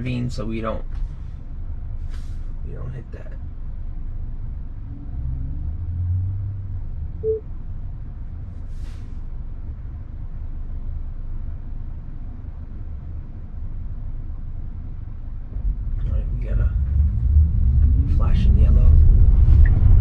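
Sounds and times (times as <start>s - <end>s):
low road rumble: 0.0s - 20.0s
brief hiss: 2.1s - 2.4s
short beep: 7.2s - 7.5s.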